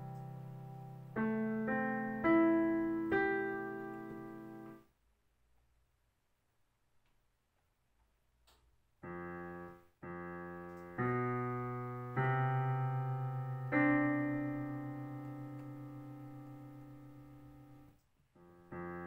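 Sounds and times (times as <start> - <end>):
digital piano chords: 0.0 - 4.9, 9.0 - 19.0.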